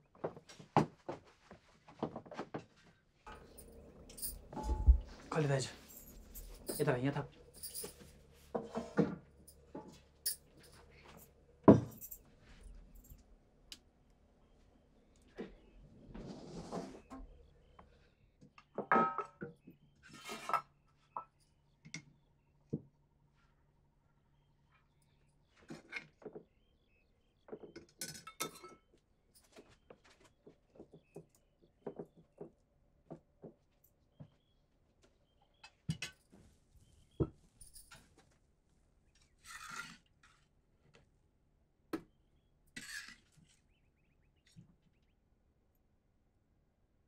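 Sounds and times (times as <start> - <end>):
metal spoon clinking on pots: 28.0 - 28.8.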